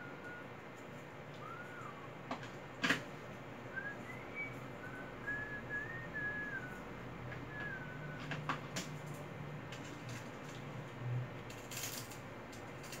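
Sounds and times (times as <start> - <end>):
person whistling a slow tune: 0.0 - 0.5, 1.4 - 2.1, 3.7 - 8.3.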